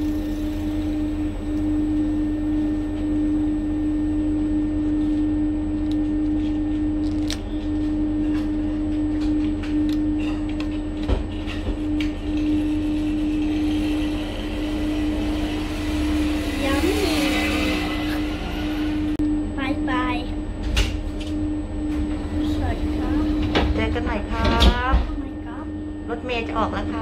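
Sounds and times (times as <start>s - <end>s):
constant hum: 0.0s - 27.0s.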